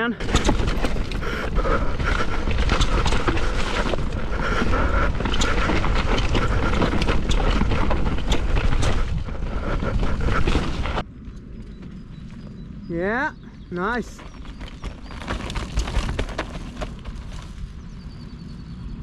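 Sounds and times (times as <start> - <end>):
wind buffeting microphone: 0.0 - 19.0
tyres rolling through mud: 0.2 - 11.0, 14.2 - 18.0.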